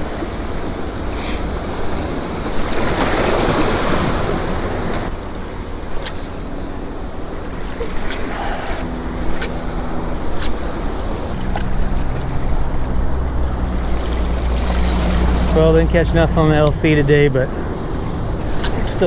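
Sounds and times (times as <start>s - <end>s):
surf washing against rocks: 0.0s - 13.1s
low steady hum: 3.8s - 19.0s.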